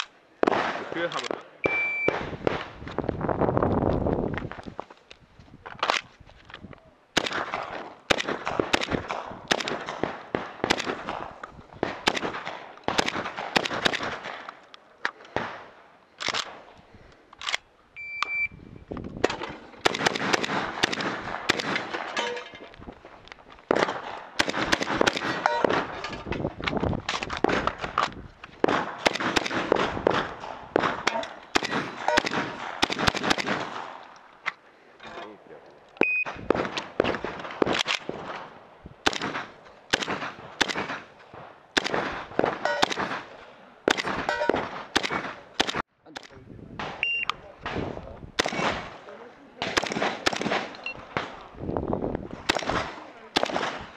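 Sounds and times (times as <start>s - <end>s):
shotgun rapid shots: 7.2s - 14.5s, 19.2s - 22.2s, 23.7s - 26.0s, 28.6s - 34.0s, 39.0s - 41.1s, 41.8s - 43.3s, 43.9s - 45.8s, 48.4s - 49.0s, 49.6s - 51.4s, 52.4s - 53.9s.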